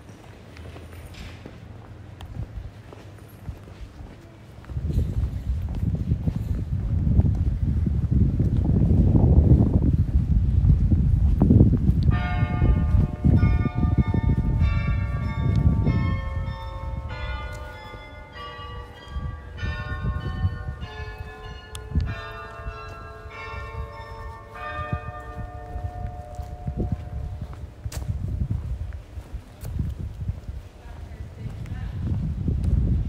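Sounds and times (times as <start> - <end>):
low rumbling street noise: 0.0 - 33.0
church bells ringing: 12.1 - 27.8.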